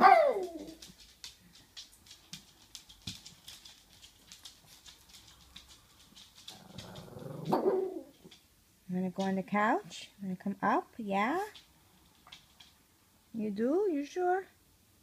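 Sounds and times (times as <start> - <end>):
dog claws clicking on floor: 0.0 - 8.6, 11.4 - 12.9
dog whining: 6.9 - 8.3.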